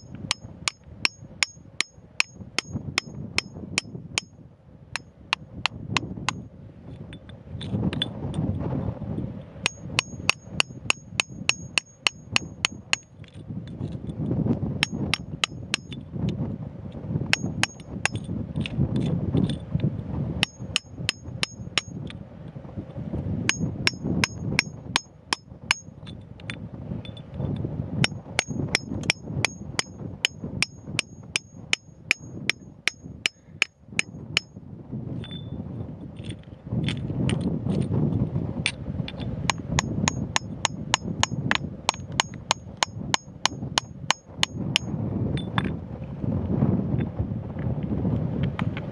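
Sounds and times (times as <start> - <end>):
hammer striking steel chisel: 0.0 - 4.3, 9.6 - 13.4, 14.8 - 16.0, 17.3 - 18.3, 20.4 - 22.0, 23.5 - 25.9, 28.0 - 34.5, 39.5 - 44.9
wind rumble on microphone: 0.0 - 48.9.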